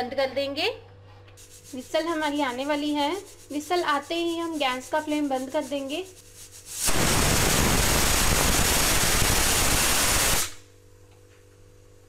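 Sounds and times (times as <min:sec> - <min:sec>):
pressure cooker steam hissing: 0:06.7 - 0:10.6.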